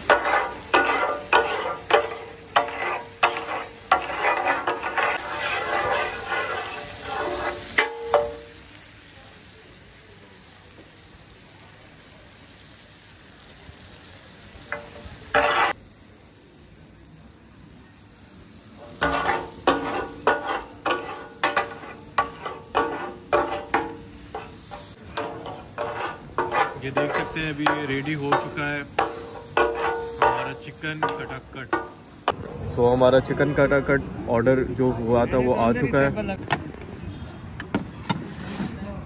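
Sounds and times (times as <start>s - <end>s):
metal spatulas clattering on griddle: 0.0s - 8.5s, 14.7s - 15.8s, 18.8s - 32.1s
chicken sizzling: 0.0s - 32.4s.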